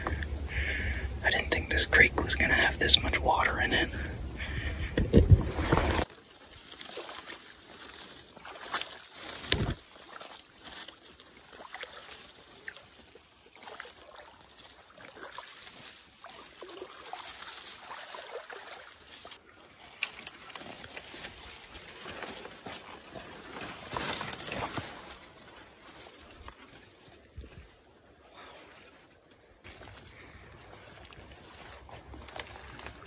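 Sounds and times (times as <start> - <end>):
footsteps wading through water: 5.5 - 33.0
brushing through undergrowth: 5.6 - 27.6.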